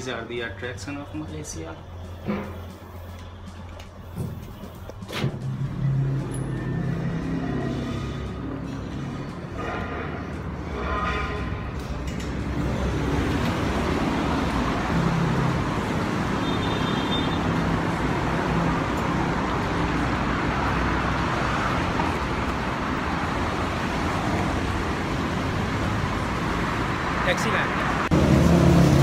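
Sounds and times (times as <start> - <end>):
city road traffic: 0.0 - 29.0.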